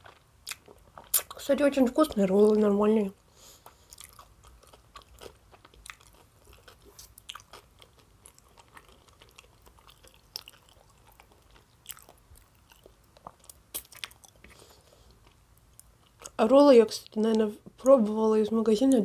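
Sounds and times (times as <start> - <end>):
mouth clicks and smacks: 0.4 - 1.4, 12.8 - 14.6.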